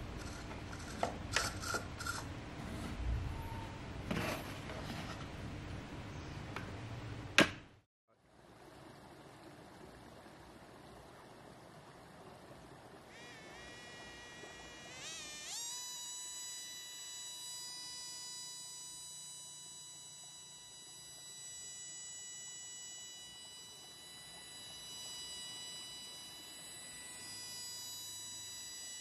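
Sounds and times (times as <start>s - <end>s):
small motor buzzing whine: 0.0s - 5.2s, 12.2s - 29.0s
plastic handling and rubbing: 4.0s - 5.5s.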